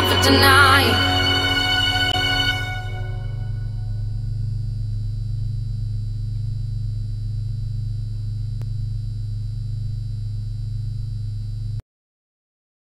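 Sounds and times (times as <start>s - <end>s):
faint high whine: 0.0s - 11.8s
low electrical hum: 1.5s - 11.8s.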